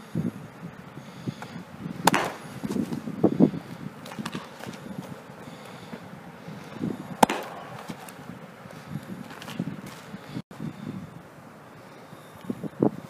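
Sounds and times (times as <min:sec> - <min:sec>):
baseball popping into mitt: 0:02.0 - 0:03.0, 0:07.2 - 0:08.2
cleats scuffing on dirt: 0:06.6 - 0:10.4.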